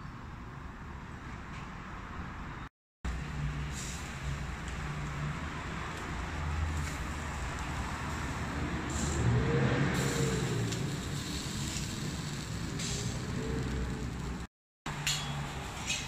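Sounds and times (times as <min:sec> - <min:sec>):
meat sizzling on a grill: 0:10.0 - 0:14.5
steady low rumble: 0:10.0 - 0:14.5.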